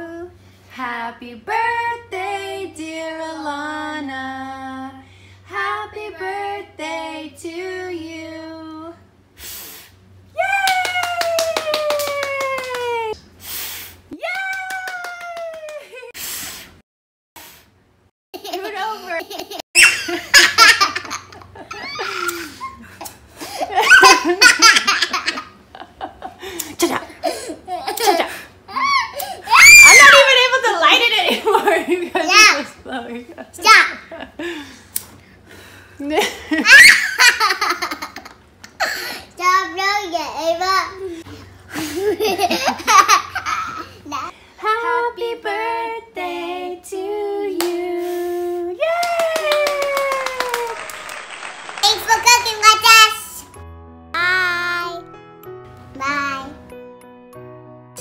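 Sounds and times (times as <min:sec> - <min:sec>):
child singing: 0:00.8 - 0:04.8, 0:05.5 - 0:09.0, 0:44.6 - 0:48.0
high falling cheer: 0:10.4 - 0:13.2, 0:14.2 - 0:16.0, 0:28.8 - 0:30.4, 0:48.8 - 0:53.0
hand clapping: 0:10.6 - 0:13.0, 0:14.3 - 0:16.0, 0:49.0 - 0:52.9
toddler laughing heartily: 0:18.4 - 0:29.8, 0:36.2 - 0:39.2, 0:41.7 - 0:44.3
children laughing: 0:18.4 - 0:30.4, 0:36.0 - 0:39.0, 0:41.7 - 0:44.3
child shouting excitedly: 0:29.5 - 0:30.5.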